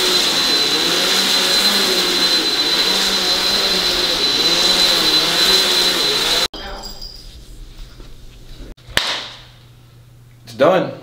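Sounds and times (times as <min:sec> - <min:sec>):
upright vacuum cleaner on carpet: 0:00.0 - 0:06.5.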